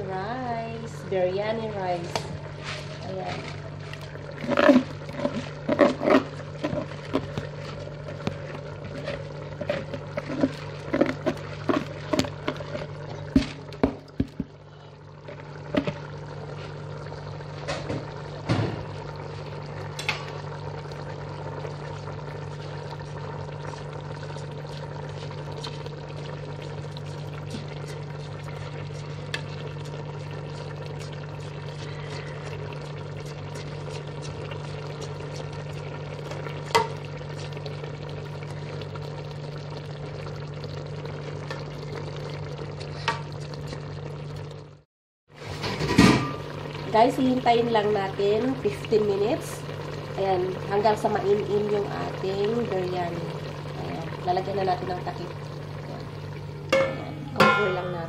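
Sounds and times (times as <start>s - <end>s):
steady low hum: 46.2s - 58.0s.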